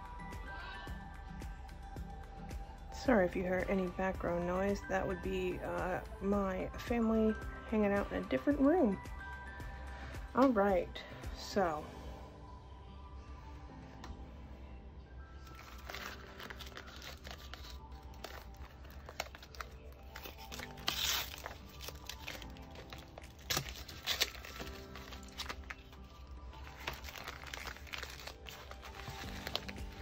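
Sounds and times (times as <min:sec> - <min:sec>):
soft background music: 0:00.0 - 0:30.0
paper and wrap crinkling: 0:15.4 - 0:30.0.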